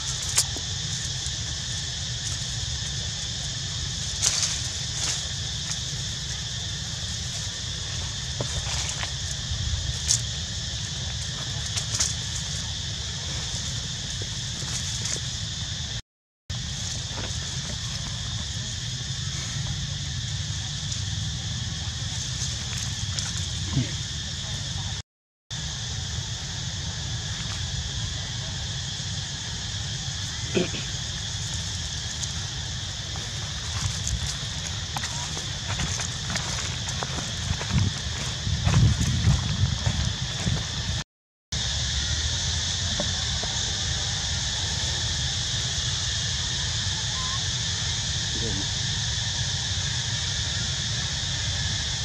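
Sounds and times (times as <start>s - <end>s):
high insect drone: 0.0s - 41.0s, 41.6s - 52.0s
leaves crackling: 0.1s - 15.9s, 29.8s - 41.0s.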